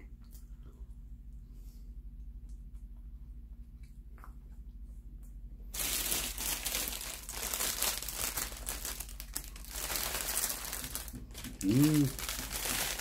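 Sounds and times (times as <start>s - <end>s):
plastic bag crinkling: 5.7s - 13.0s.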